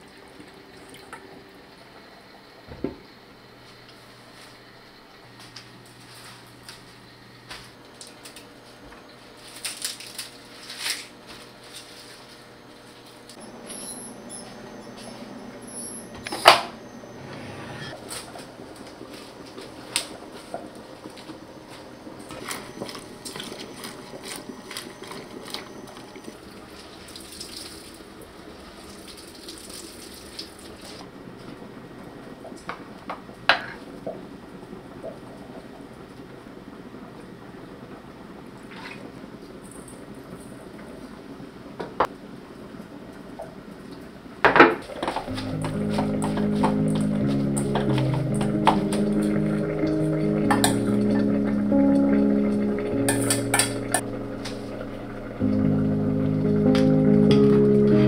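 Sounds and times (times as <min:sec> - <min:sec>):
rustling of crisp leaves: 0:08.0 - 0:13.6
hands rinsing greens: 0:18.0 - 0:31.0
kitchen tap running: 0:22.2 - 0:31.0, 0:44.4 - 0:55.5.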